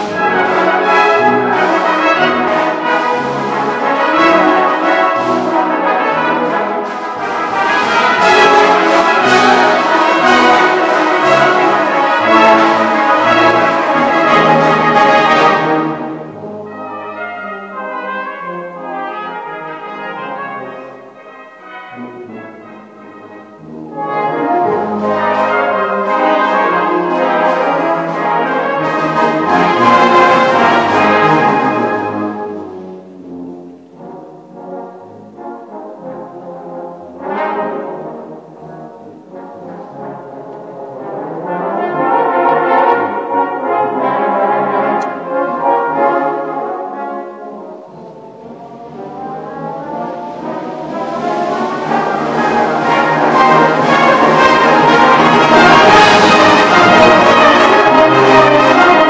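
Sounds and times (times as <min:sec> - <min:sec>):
brass band with percussion: 0:00.0 - 0:59.0.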